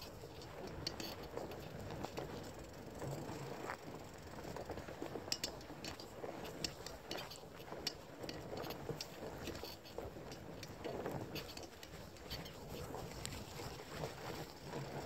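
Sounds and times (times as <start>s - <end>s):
bike parts rattling: 0.4s - 3.1s.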